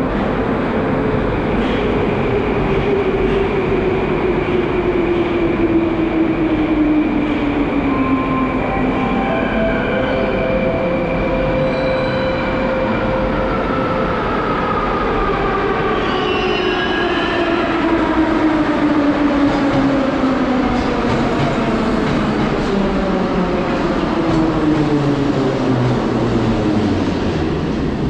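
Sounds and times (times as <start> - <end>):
metro train approaching: 0.0 - 28.0.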